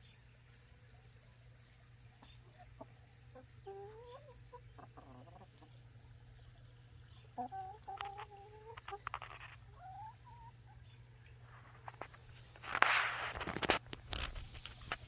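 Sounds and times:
hens calling: 0:02.2 - 0:11.0.

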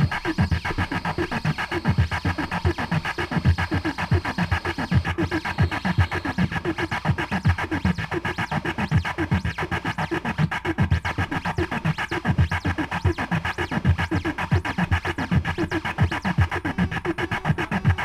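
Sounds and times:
throbbing low electronic thuds: 0:00.0 - 0:06.2.

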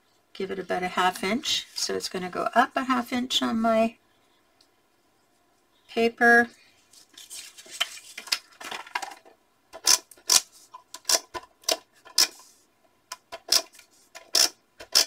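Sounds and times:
paper rustling: 0:06.8 - 0:09.3.

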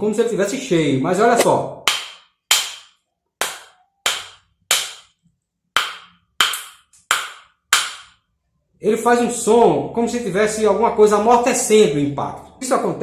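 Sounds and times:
wooden pestle knocking on coconut: 0:01.8 - 0:05.1, 0:05.8 - 0:08.2.

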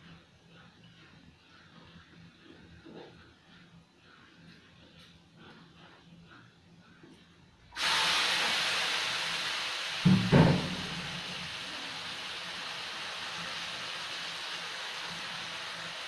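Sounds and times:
prawns sizzling in hot oil: 0:07.8 - 0:16.0
short knocks: 0:10.1 - 0:11.2.

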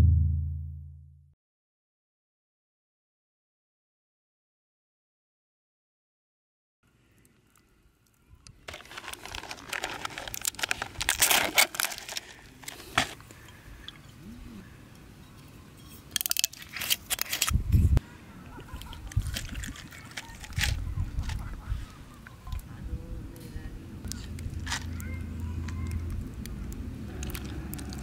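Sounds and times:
low thump: 0:00.0 - 0:01.2
plastic lid crinkling: 0:08.7 - 0:13.2, 0:19.0 - 0:21.4
ice shifting in a cup: 0:08.7 - 0:14.2, 0:18.7 - 0:21.5.

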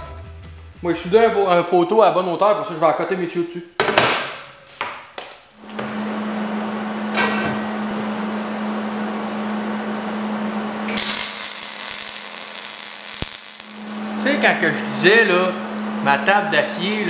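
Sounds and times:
welding arc crackling hiss: 0:10.9 - 0:14.5
steady hum: 0:10.9 - 0:16.4.

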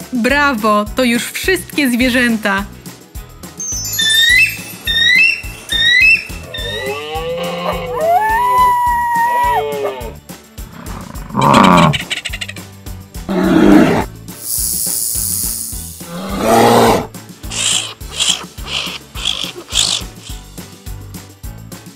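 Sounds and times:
light instrumental music: 0:00.0 - 0:21.9
short high chirps: 0:03.6 - 0:07.0, 0:14.4 - 0:15.9
deep growling roars: 0:10.7 - 0:12.0, 0:13.3 - 0:14.1, 0:16.0 - 0:19.2
hissing rattle: 0:10.7 - 0:12.6, 0:13.3 - 0:20.8.

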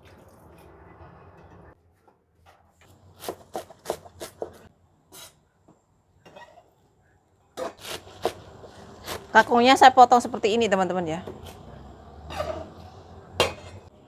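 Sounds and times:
knife cutting vegetable stems: 0:03.1 - 0:04.6, 0:07.6 - 0:09.7.

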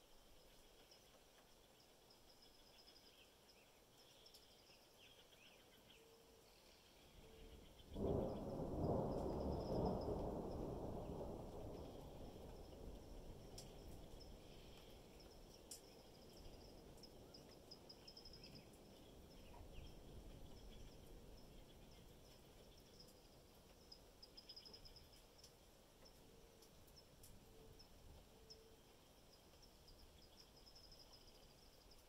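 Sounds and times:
distant thunder rumbling: 0:07.7 - 0:17.1
faint rapid high chirping: 0:11.0 - 0:32.0
scattered ticks: 0:11.8 - 0:32.0.

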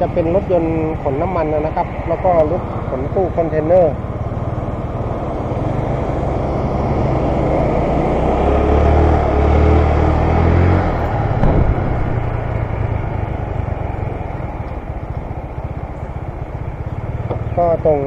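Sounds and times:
passing vehicle engine: 0:00.0 - 0:18.0
scooter engine and road noise: 0:00.0 - 0:18.0
short thump: 0:11.3 - 0:13.3.

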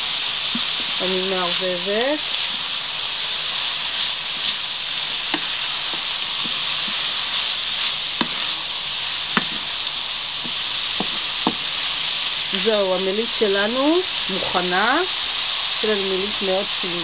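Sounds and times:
meat sizzling in a frying pan: 0:00.0 - 0:17.0
wooden spoon knocking and scraping pan: 0:08.1 - 0:08.6, 0:10.4 - 0:11.7.

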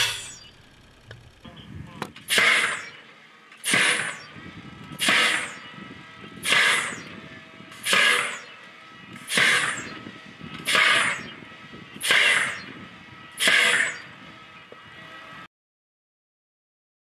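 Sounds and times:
drone launcher whoosh: 0:00.0 - 0:00.5, 0:02.2 - 0:14.3.

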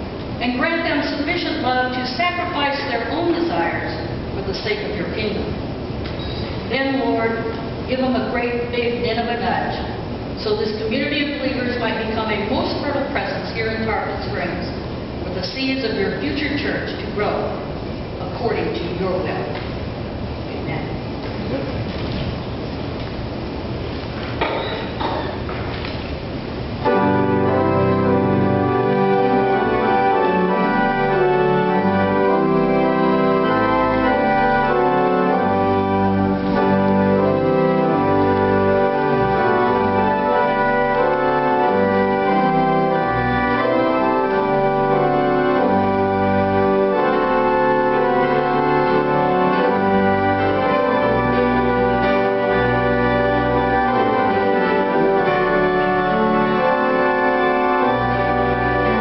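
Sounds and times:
church organ chords: 0:26.5 - 0:59.0.

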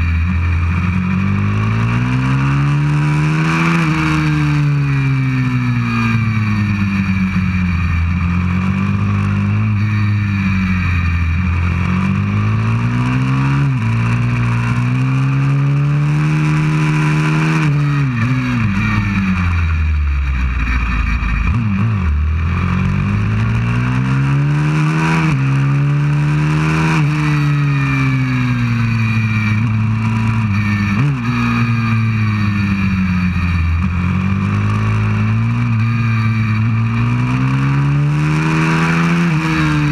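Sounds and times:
motorbike engine revving: 0:00.0 - 0:39.9.

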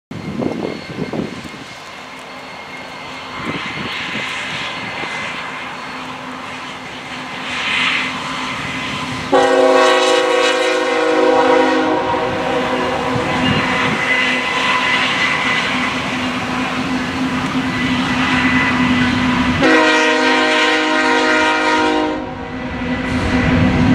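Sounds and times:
locomotive engine drone: 0:00.1 - 0:23.9
train horn blast: 0:09.3 - 0:15.2, 0:18.4 - 0:22.6.

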